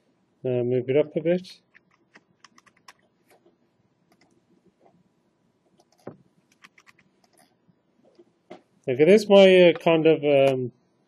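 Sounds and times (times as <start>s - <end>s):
computer keyboard clicks: 1.7s - 3.0s, 4.1s - 4.4s, 5.8s - 7.4s.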